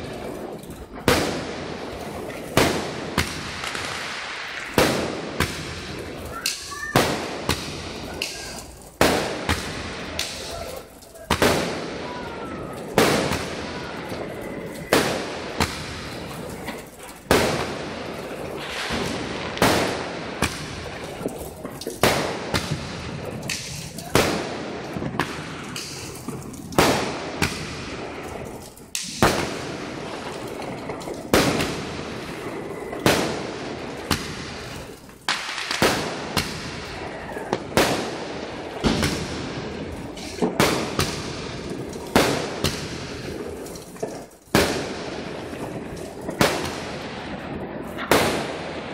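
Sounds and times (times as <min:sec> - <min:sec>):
fireworks bangs with echo: 0:00.0 - 0:48.9.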